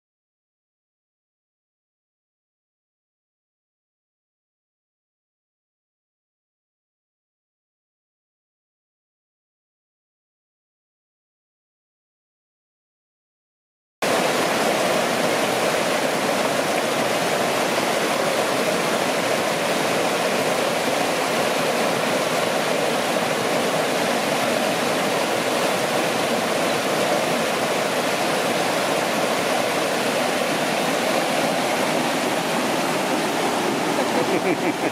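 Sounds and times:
creek rushing over boulders: 14.0s - 34.9s.

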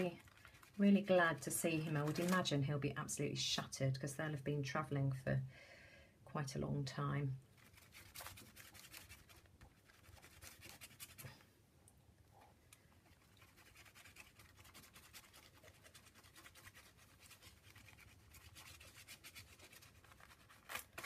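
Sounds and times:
hand smearing paint on paper: 7.6s - 11.4s, 13.1s - 20.7s.

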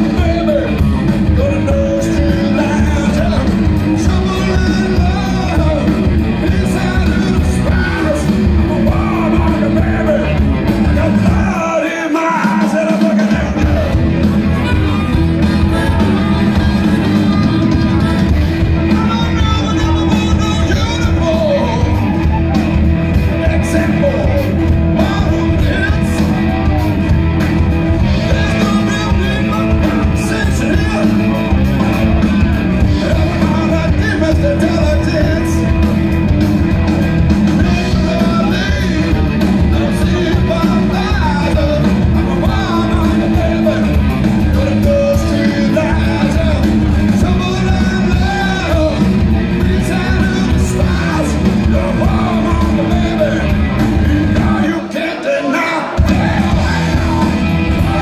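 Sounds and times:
live rock band playing: 0.0s - 58.0s
man shouting vocals: 17.6s - 22.7s, 49.7s - 58.0s.

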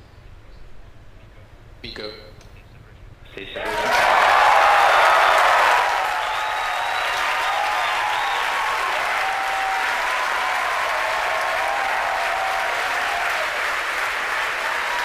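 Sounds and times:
crowd applauding: 3.6s - 15.0s.

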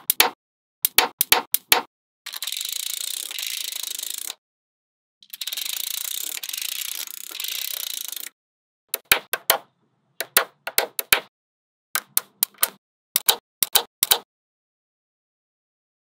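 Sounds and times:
magnetic balls clicking: 5.2s - 9.6s, 12.0s - 14.2s.

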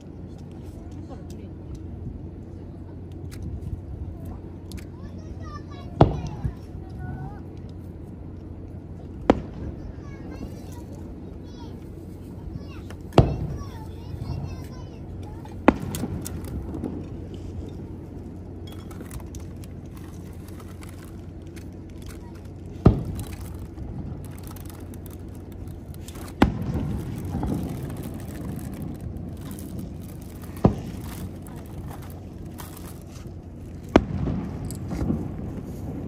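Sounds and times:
low background noise: 0.0s - 36.0s
fireworks booms with rumbling echo: 5.8s - 7.3s, 8.8s - 36.0s.

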